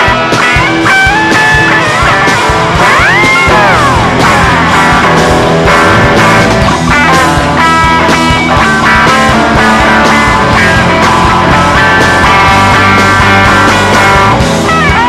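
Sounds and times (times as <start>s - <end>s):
bass guitar: 0.0s - 15.0s
drums: 0.0s - 15.0s
electric guitar lead lines: 0.0s - 15.0s.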